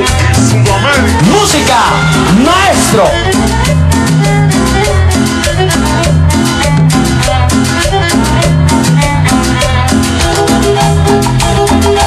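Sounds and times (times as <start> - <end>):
latin dance music: 0.0 - 12.0.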